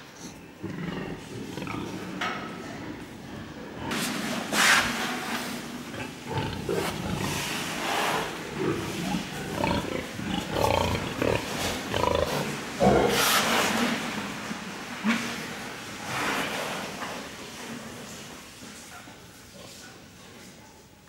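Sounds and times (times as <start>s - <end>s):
pigs grunting and squealing: 0.6s - 4.5s, 5.8s - 14.0s.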